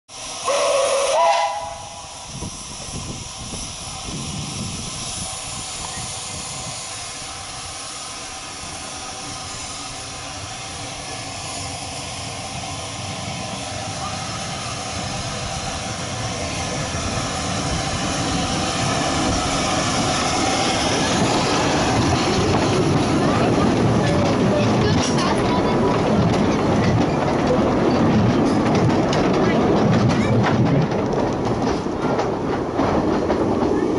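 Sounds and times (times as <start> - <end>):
steam locomotive hissing and chuffing: 0.1 - 33.9
steam locomotive whistle: 0.4 - 2.2.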